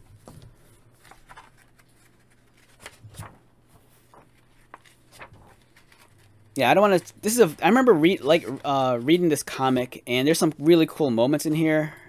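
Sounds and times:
paper pages rustling: 0.0s - 9.6s.

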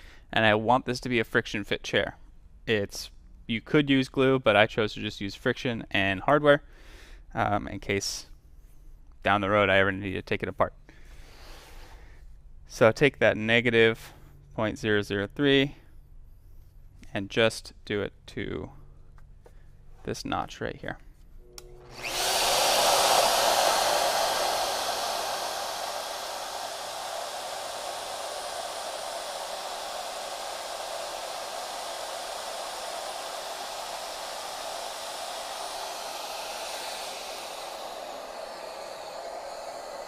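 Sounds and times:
dust extraction running: 21.4s - 40.0s
router cutting wood: 21.5s - 40.0s.

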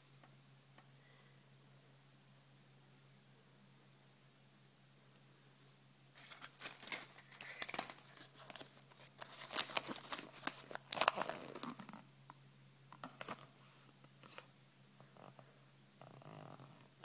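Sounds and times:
paper leaflet rustling: 6.2s - 11.8s
foil wrapper crinkling: 6.2s - 12.0s.

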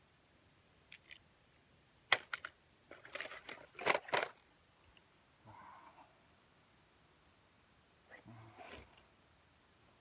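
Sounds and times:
plastic toys clicking and clattering: 0.9s - 1.2s, 2.1s - 4.4s.

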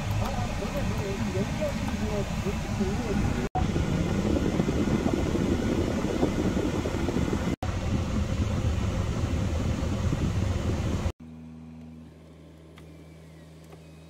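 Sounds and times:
ventilation blower rushing air: 0.0s - 11.2s.

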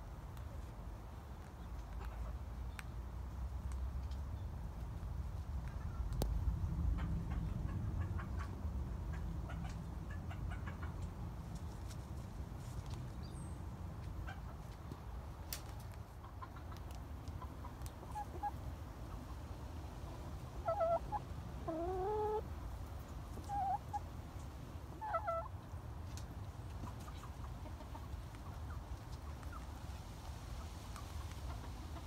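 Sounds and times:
hens clucking: 6.9s - 12.0s, 14.1s - 15.1s, 16.0s - 29.8s, 30.6s - 32.0s.

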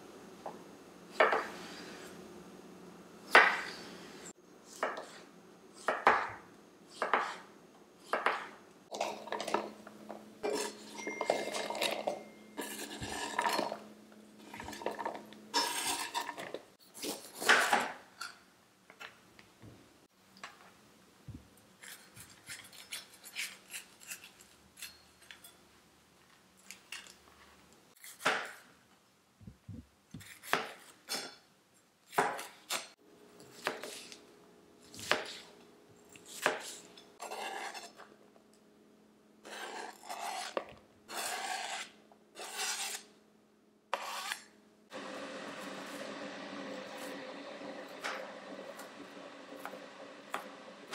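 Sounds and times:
knife scraping: 10.4s - 13.8s, 14.4s - 18.3s, 21.8s - 25.6s, 34.8s - 38.1s, 39.4s - 43.1s, 43.9s - 44.6s.

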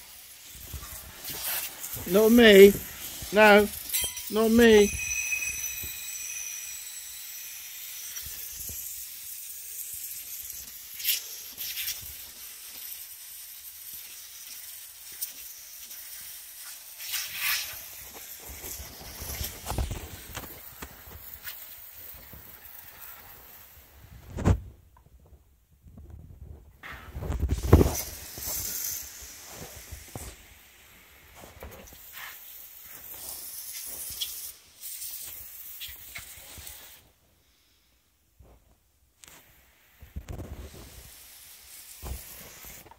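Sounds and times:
pressure washer jet hissing: 0.0s - 19.6s.

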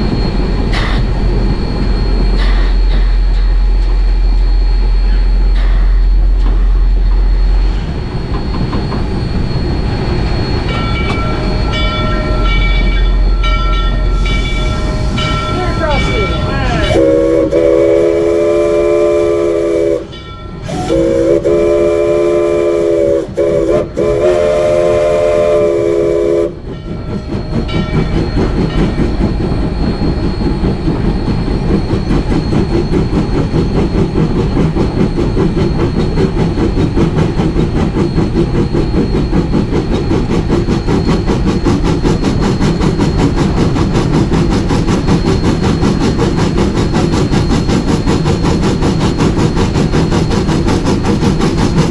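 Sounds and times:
steam locomotive running beat: 0.0s - 51.9s
steam whistle blasts: 14.2s - 26.6s.

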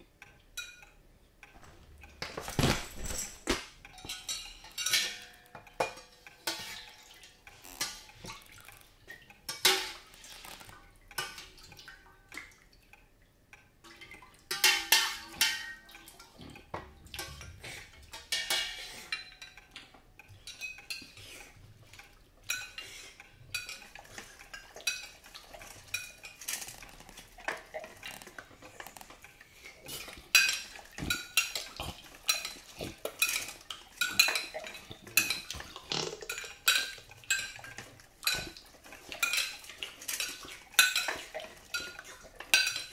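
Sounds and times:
spoons clinking against bowls: 3.9s - 8.2s, 14.5s - 16.6s, 17.2s - 21.4s, 22.4s - 28.7s, 29.9s - 42.9s.

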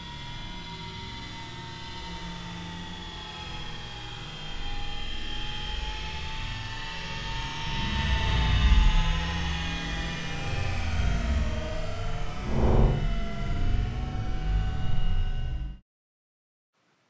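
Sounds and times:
low rumble: 12.2s - 13.3s.

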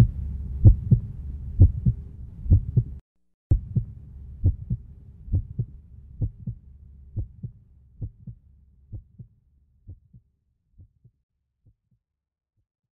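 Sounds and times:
heartbeat thumps: 0.0s - 6.6s, 7.2s - 9.3s, 9.9s - 10.2s, 10.8s - 11.1s
low hum: 0.0s - 9.3s.

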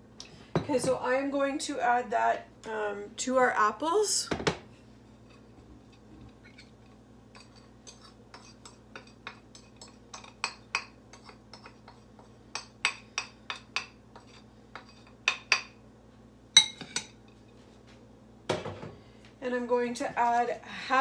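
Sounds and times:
metal spoon clinking on ceramic dish: 16.6s - 17.2s.

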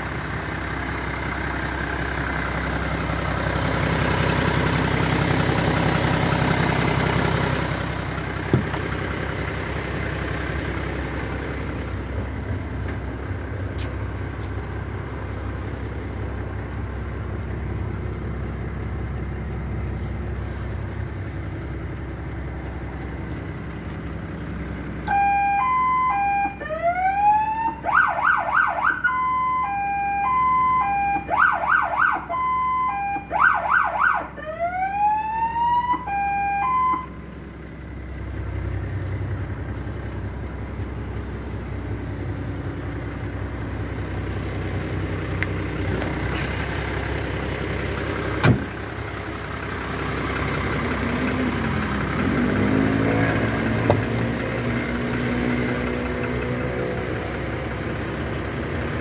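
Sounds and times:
diesel engine idling: 0.0s - 59.0s
electronic siren: 25.1s - 37.2s.

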